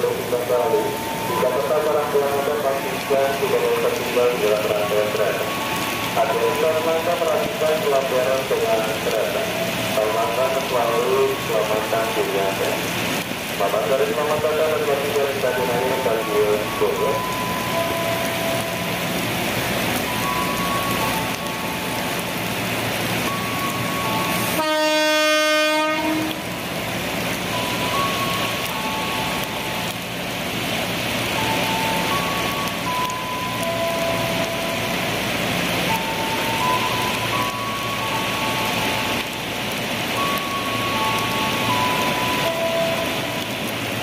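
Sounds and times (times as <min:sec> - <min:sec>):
heavy rain falling: 0:00.0 - 0:44.0
electric train horn: 0:24.5 - 0:26.4.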